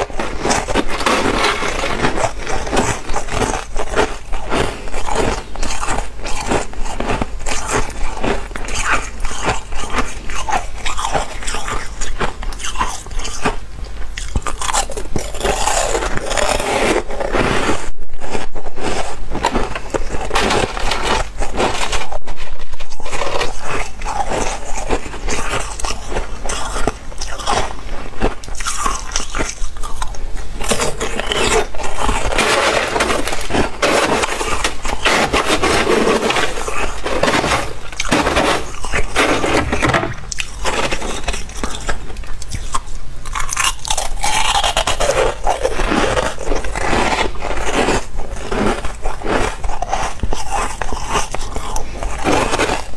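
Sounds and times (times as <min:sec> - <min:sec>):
crunchy chewing of frost: 0:00.0 - 0:52.9.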